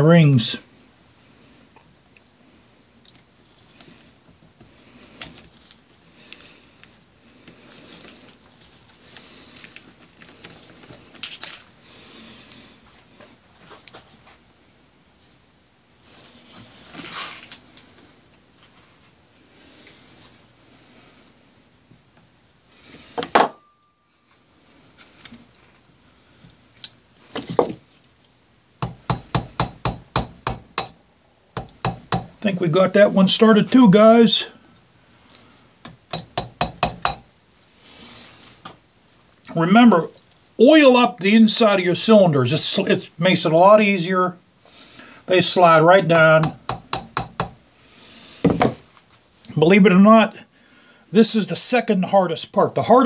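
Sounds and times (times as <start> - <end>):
sharp taps on metal block: 28.8 - 31.0, 36.1 - 37.2, 46.4 - 47.6.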